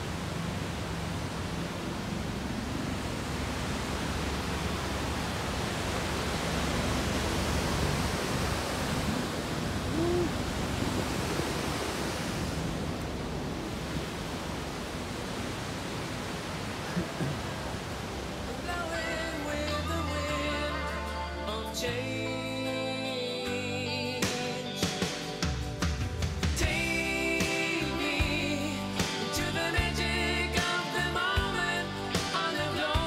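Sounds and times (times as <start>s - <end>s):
rushing water: 0.0s - 33.0s.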